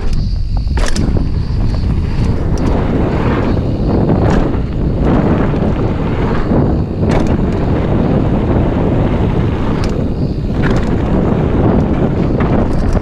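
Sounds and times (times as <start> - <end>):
bike knocking on bumps: 0.0 - 13.0
bike tyre rumble: 0.0 - 13.0
wind over microphone: 0.0 - 13.0.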